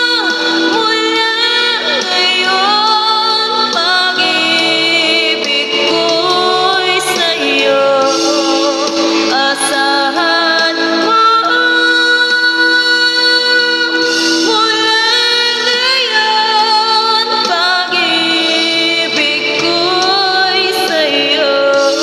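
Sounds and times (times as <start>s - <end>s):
backing music: 0.0s - 22.0s
woman singing into a microphone: 0.0s - 22.0s.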